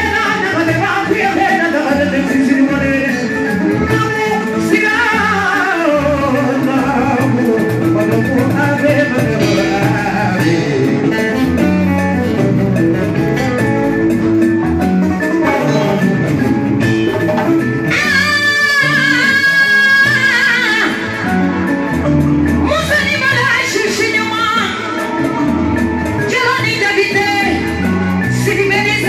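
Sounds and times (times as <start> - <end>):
person singing over instruments: 0.0 - 12.5, 15.1 - 23.1.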